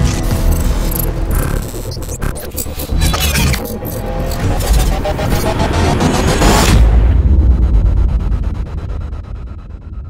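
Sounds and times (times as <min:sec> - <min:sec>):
busy electronic clicks: 0:00.0 - 0:05.5
low rumble: 0:04.8 - 0:10.0.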